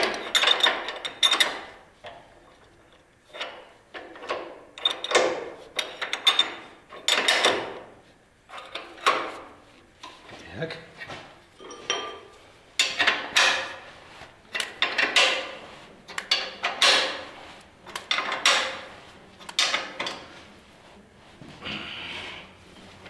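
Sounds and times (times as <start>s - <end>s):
wrench scraping and clicking on nut: 3.3s - 7.6s, 14.5s - 17.3s, 17.9s - 20.2s.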